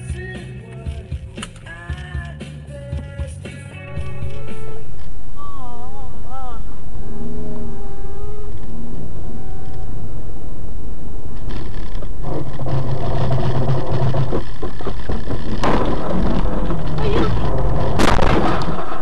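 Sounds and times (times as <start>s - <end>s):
car engine and road noise: 4.0s - 19.0s
sudden loud burst of noise: 6.3s - 19.0s.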